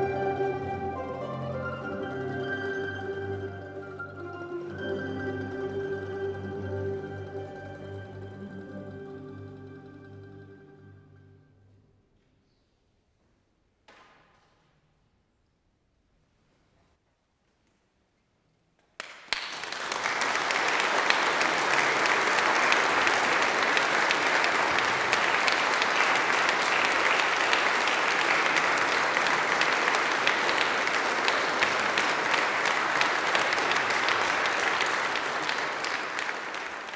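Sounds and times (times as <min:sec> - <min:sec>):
audience applause: 0:00.0 - 0:08.6, 0:19.0 - 0:36.9.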